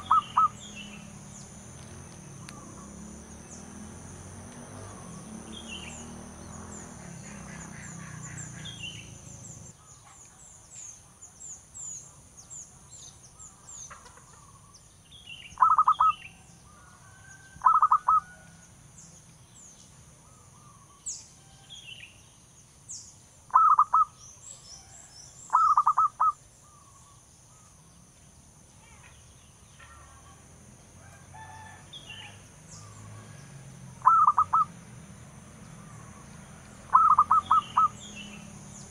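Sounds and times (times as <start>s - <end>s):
dove cooing: 0.0s - 1.2s, 15.6s - 16.1s, 17.6s - 18.4s, 23.5s - 24.1s, 25.5s - 26.4s, 34.0s - 34.7s, 36.9s - 38.0s
high insect drone: 0.0s - 9.7s
small birds chirping: 0.0s - 30.4s, 31.4s - 38.9s.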